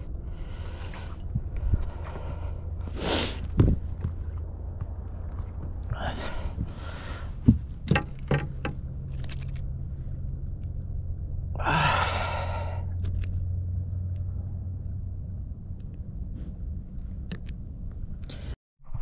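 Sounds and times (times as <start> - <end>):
steady low hum: 0.0 - 19.0
man breathing out heavily: 6.0 - 7.4, 11.6 - 13.0
sharp knocks: 7.5 - 8.8.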